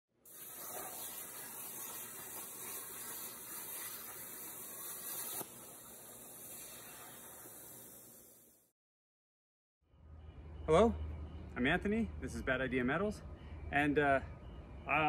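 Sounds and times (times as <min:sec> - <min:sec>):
plasma cutter hissing: 0:00.3 - 0:08.7
soft air hiss: 0:00.3 - 0:08.7.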